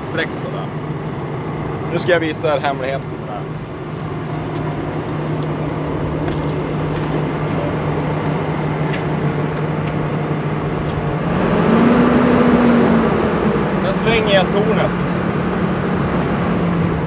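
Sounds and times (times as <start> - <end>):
excavator diesel engine idling: 0.0 - 11.2.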